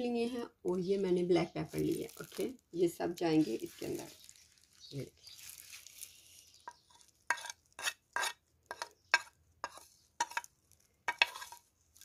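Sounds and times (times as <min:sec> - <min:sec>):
metal spoon scraping a plate: 0:06.7 - 0:10.5, 0:11.1 - 0:11.7.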